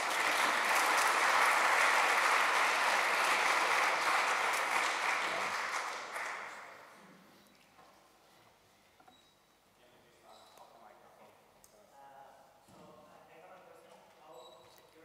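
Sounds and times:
audience applauding: 0.0s - 6.9s.

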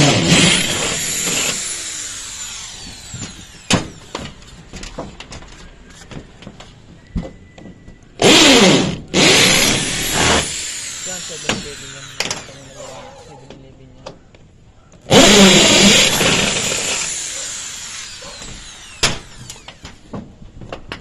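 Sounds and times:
electric power drill running: 0.0s - 4.3s, 8.2s - 12.8s, 15.1s - 20.1s.

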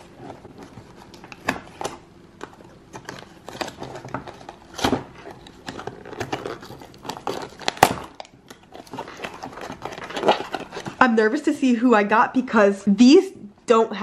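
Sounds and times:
cardboard box being torn: 3.0s - 11.0s.

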